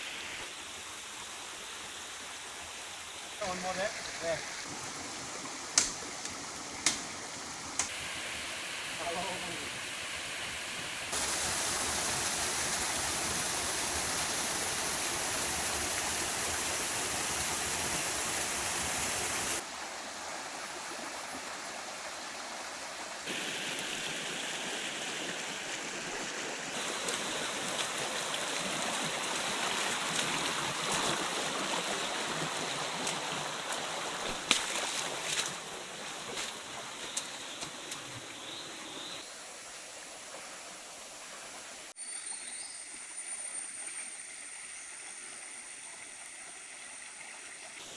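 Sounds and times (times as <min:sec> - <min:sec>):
waterfall rushing over boulders: 0:00.0 - 0:38.4
shallow stream running: 0:00.0 - 0:47.9.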